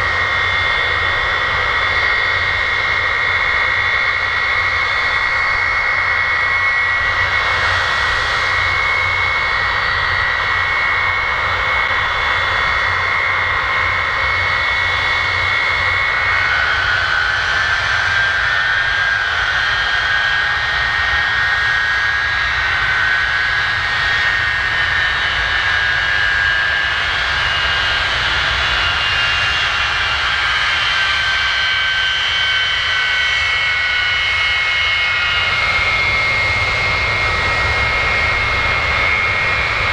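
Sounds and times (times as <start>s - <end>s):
jet engines running: 0.0s - 39.9s.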